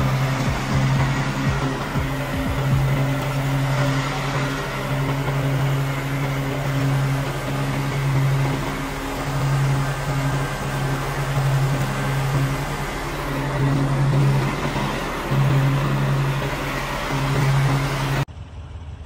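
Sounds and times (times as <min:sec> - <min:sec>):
lawn mower engine running: 0:00.0 - 0:19.0.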